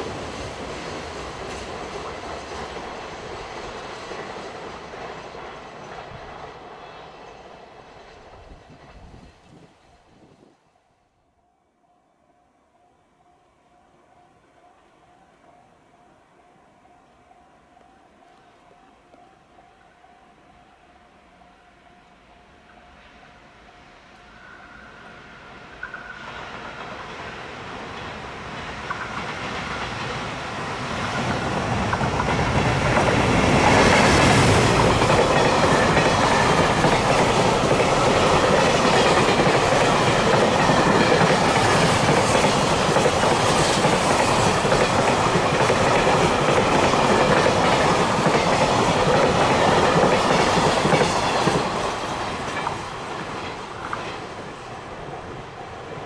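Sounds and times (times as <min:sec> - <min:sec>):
freight train wheels rumbling on rails: 0:00.0 - 0:10.6, 0:22.4 - 0:56.0.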